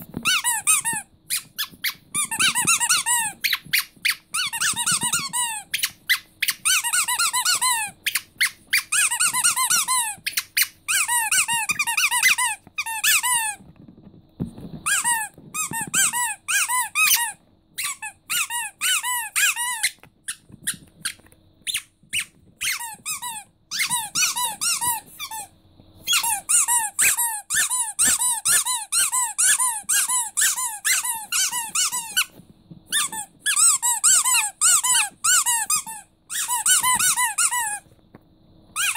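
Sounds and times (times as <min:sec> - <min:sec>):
rubber squeaky toys squeaking: 0:00.0 - 0:13.9, 0:14.5 - 0:37.9.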